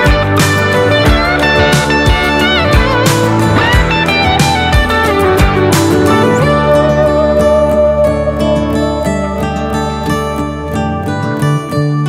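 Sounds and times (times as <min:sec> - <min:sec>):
steady thumping beat: 0:00.0 - 0:06.6
guitar tune with sliding notes: 0:00.0 - 0:12.0.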